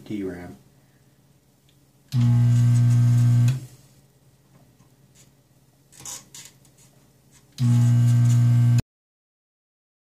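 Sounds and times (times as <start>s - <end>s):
desoldering pump humming: 2.1s - 3.7s, 7.6s - 8.8s.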